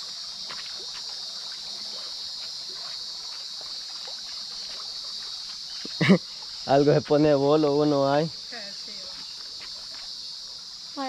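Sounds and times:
high-pitched outdoor hiss: 0:00.0 - 0:11.0
footsteps scuffing on rock: 0:09.1 - 0:10.2.

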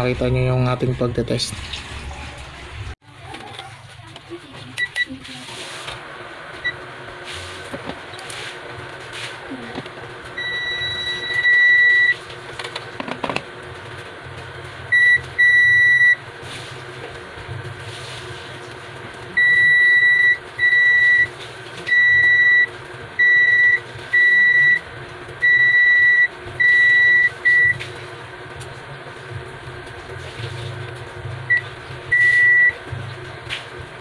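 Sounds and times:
multimeter continuity beep: 0:10.4 - 0:12.2, 0:14.9 - 0:16.2, 0:19.4 - 0:21.3, 0:21.9 - 0:24.8, 0:25.4 - 0:27.8, 0:31.5 - 0:32.8.

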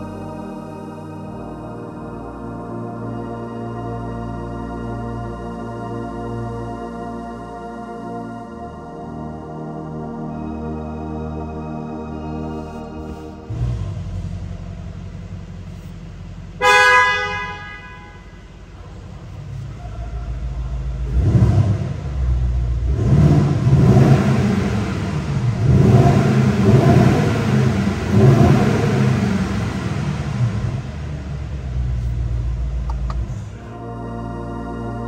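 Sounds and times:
car engine idling and revving: 0:12.4 - 0:33.8
car horn blast: 0:16.6 - 0:18.6.

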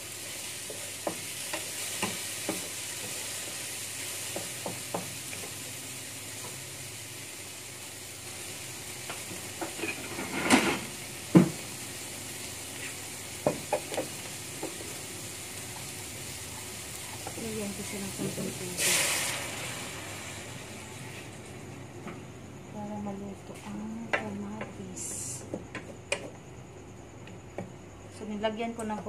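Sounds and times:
tomatoes sizzling in a pan: 0:00.0 - 0:22.0.

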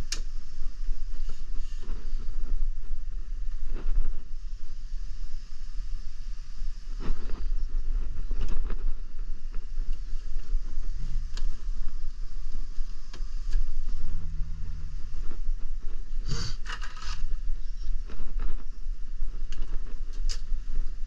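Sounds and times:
phone microphone handling rumble: 0:06.9 - 0:21.0
scraping and rustling: 0:10.0 - 0:18.7.

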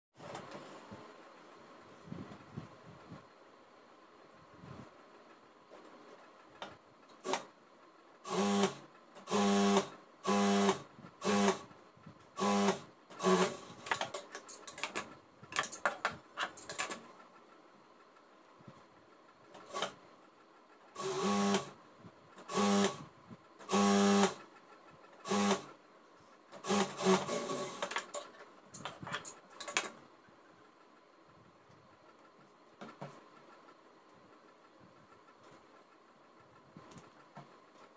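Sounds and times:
industrial sewing machine running: 0:08.3 - 0:11.6, 0:12.4 - 0:13.7, 0:20.9 - 0:21.8, 0:25.2 - 0:25.7, 0:26.6 - 0:27.9.

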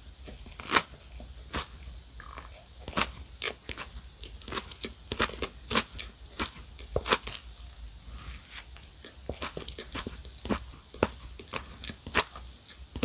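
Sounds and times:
bread crust crunching: 0:00.2 - 0:07.5, 0:08.1 - 0:13.0
chewing and biting sandwich: 0:00.4 - 0:07.4.

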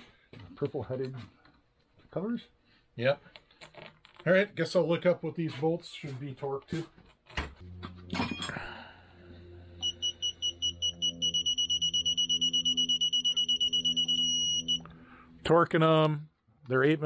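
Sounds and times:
torque wrench beeping: 0:09.8 - 0:14.9.

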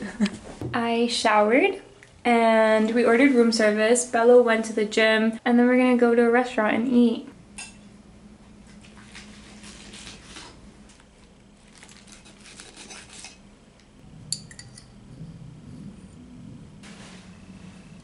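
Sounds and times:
dishes and cutlery clinking: 0:14.3 - 0:14.9.

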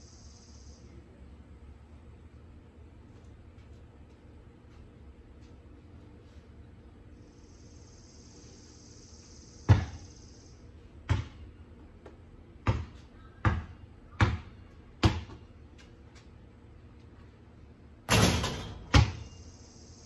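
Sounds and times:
basketball bouncing: 0:09.7 - 0:10.0, 0:11.0 - 0:15.5, 0:18.1 - 0:19.3.

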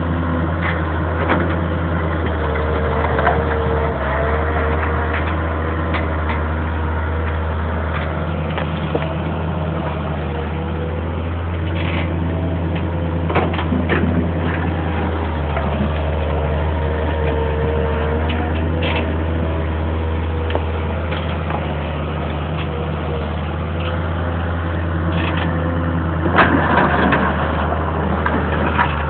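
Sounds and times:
diesel engine droning: 0:00.0 - 0:29.0.

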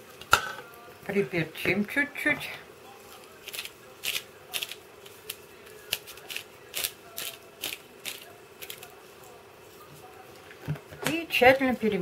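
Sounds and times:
pepper grinder grinding: 0:03.1 - 0:09.0.

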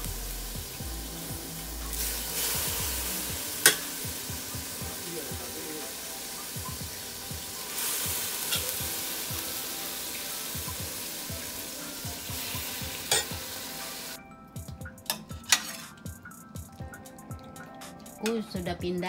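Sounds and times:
water boiling in a pot: 0:00.0 - 0:14.2.

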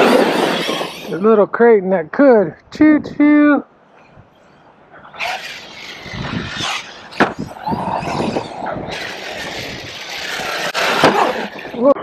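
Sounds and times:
rc truck motor whine: 0:00.0 - 0:01.1, 0:05.1 - 0:11.8.

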